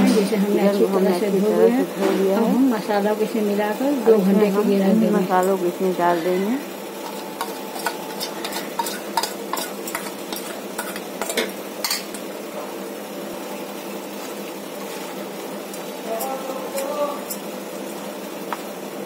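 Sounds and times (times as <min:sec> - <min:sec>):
stirring marinade into chicken: 0:06.8 - 0:12.2
spoon scraping metal bowl: 0:07.0 - 0:12.0.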